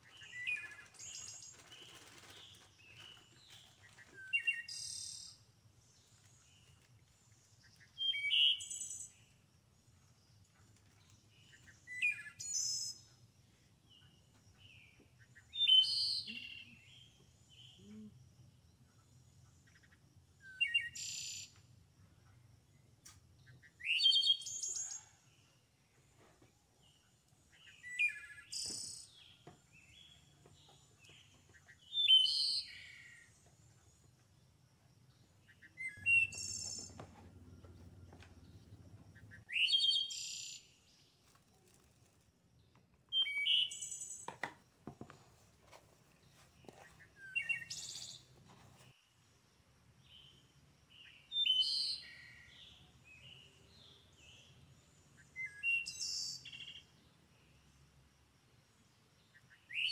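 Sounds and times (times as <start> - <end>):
songbird singing: 0.0 - 59.9
faint knocks and handling noise: 44.3 - 47.0.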